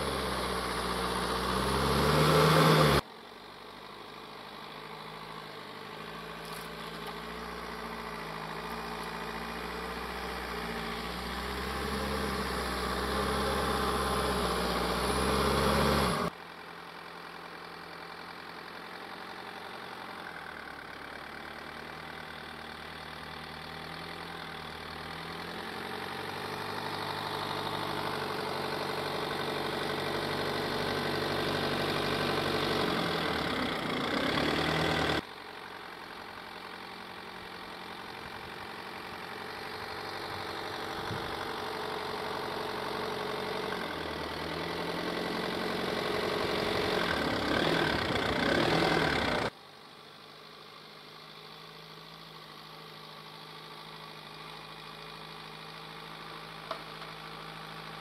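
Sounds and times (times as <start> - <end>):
van engine running under load: 0.0 - 58.0.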